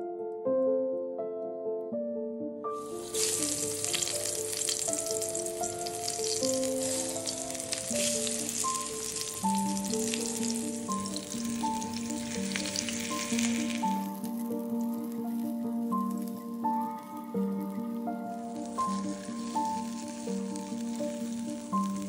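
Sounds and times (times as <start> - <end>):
eggplant sizzling in hot oil: 2.8 - 14.4, 18.4 - 22.0.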